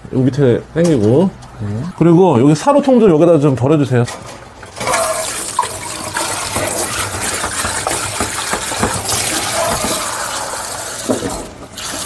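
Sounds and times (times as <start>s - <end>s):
water running from a tap: 4.8s - 12.0s.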